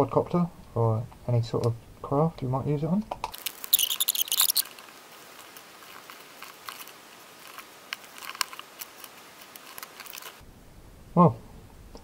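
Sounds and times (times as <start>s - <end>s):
rustling and clicking of parts: 3.2s - 10.4s.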